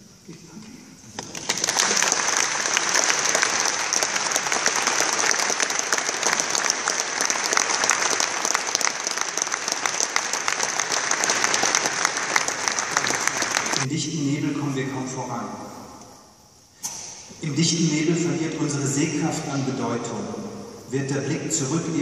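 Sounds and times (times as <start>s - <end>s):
audience applauding: 1.2s - 13.9s.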